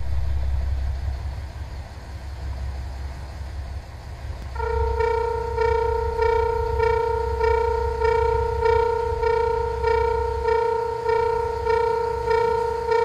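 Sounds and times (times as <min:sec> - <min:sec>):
low rumble: 0:00.0 - 0:13.0
level crossing alarm dinging: 0:04.6 - 0:13.0.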